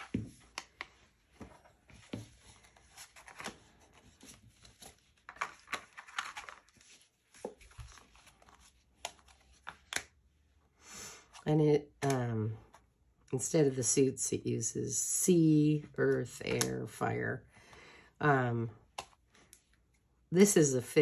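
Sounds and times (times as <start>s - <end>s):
cards clicking and rustling: 0.0s - 10.2s, 18.9s - 19.8s.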